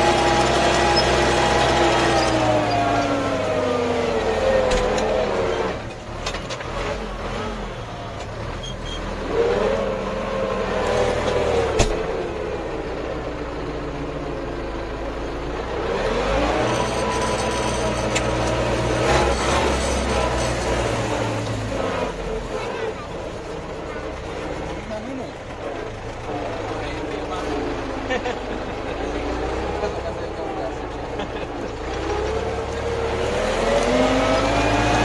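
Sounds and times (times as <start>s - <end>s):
tractor diesel engine revving: 0.0s - 35.0s.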